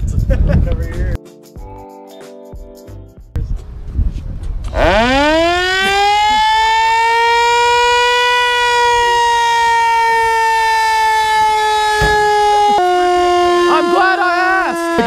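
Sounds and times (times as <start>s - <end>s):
siren winding up and wailing: 4.7s - 15.0s.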